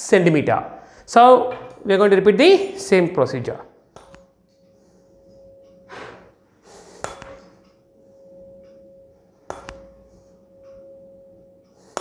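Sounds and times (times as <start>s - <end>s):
tuning fork ringing: 4.1s - 12.0s.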